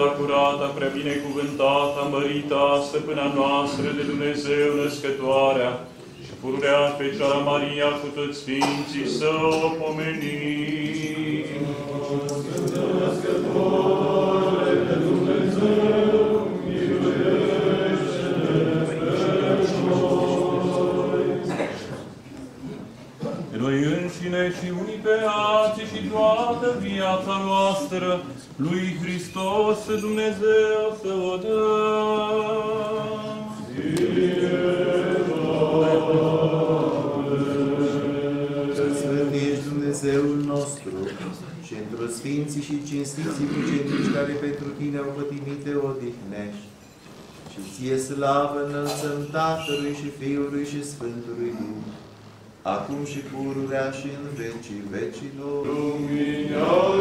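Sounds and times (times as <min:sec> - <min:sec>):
church choir chanting: 0:00.0 - 0:22.1, 0:23.5 - 0:40.8, 0:55.2 - 0:57.0.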